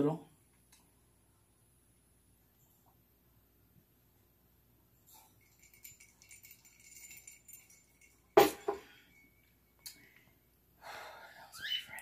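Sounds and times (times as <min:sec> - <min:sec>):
glass mug clinking: 0:05.1 - 0:09.8.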